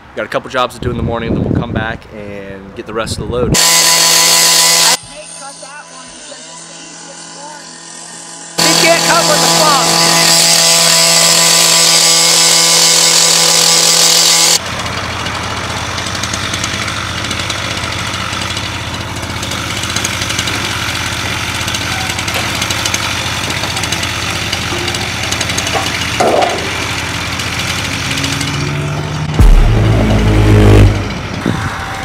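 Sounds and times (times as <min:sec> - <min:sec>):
road noise: 0:00.0 - 0:32.0
cut-off saw cutting steel: 0:03.6 - 0:31.4
low engine hum: 0:14.6 - 0:32.0
metal clank: 0:23.4 - 0:27.0.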